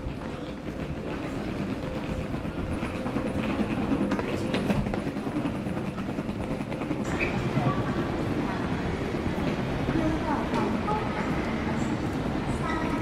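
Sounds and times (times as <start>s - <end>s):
baggage carousel belt rumbling: 0.0s - 13.0s.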